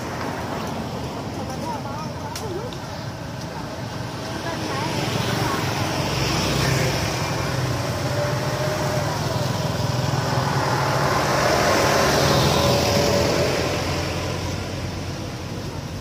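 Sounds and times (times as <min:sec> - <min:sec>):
vehicle driving past: 0:04.9 - 0:15.4.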